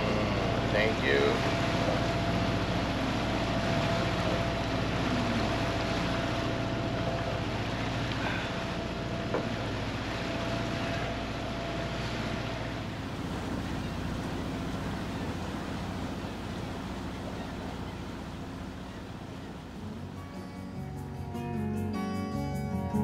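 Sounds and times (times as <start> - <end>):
water noise: 0.0 - 21.5
boat engine humming: 0.0 - 23.0
wind: 0.0 - 23.0.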